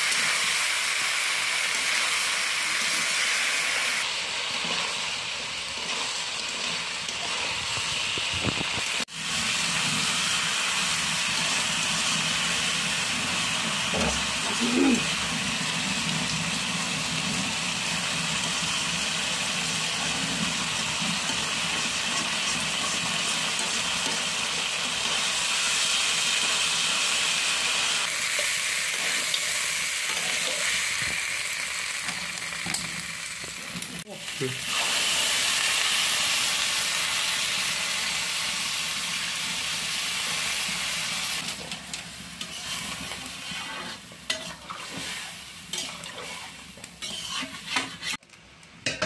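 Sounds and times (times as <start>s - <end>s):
food sizzling in a wok: 0.0s - 49.0s
metal spatula stirring: 41.6s - 48.2s.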